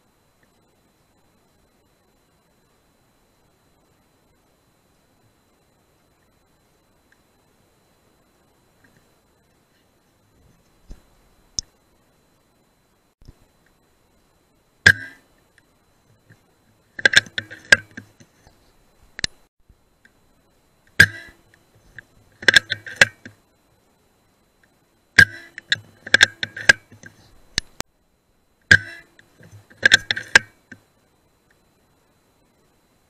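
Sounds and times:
rifle action clicks: 17.0 - 18.1, 22.4 - 23.4, 25.2 - 27.8, 28.7 - 30.8.

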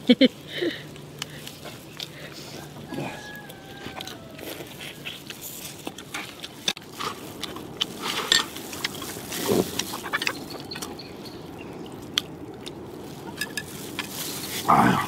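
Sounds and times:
sucking and chewing: 0.4 - 15.0
crayfish shells cracking: 3.2 - 5.3.

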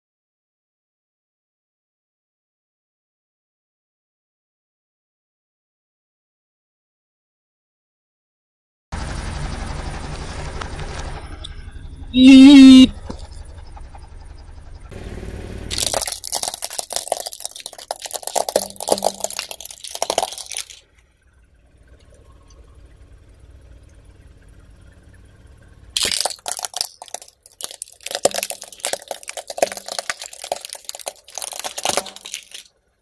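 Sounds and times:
plastic toys cracking under tyre: 15.7 - 20.8, 26.0 - 32.7.

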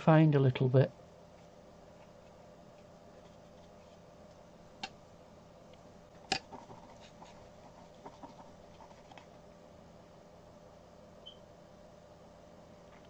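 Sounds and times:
low steady hum: 0.0 - 13.0
brush dabbing on rough paper: 6.4 - 9.4.

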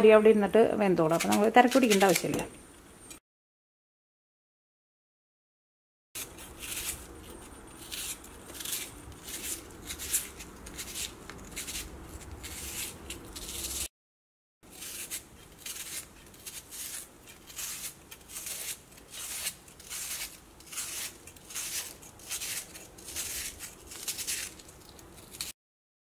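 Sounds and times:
knife slicing onion: 1.1 - 2.6, 6.2 - 13.9, 14.7 - 25.5.

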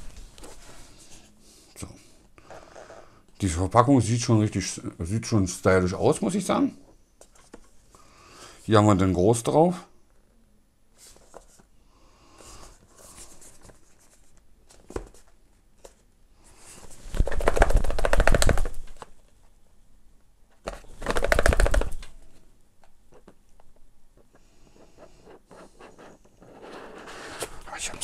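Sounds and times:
taps and rustles of handling: 7.2 - 7.8, 12.9 - 16.1, 20.5 - 25.0.

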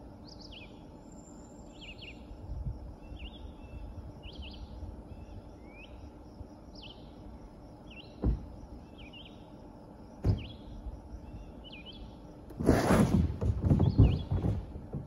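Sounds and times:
low outdoor rumble: 0.0 - 15.0
sharp thumps: 10.2 - 10.6, 12.5 - 15.0
songbird singing short phrases: 10.3 - 12.2.

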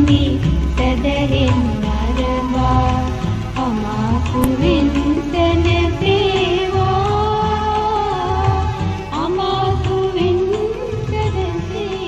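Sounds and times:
sung melody over bass beat: 0.6 - 9.0.

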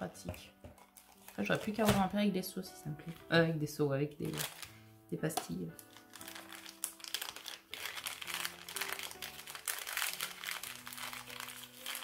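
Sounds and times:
plastic packaging crinkling: 0.8 - 2.1, 4.2 - 4.8, 5.4 - 12.0.

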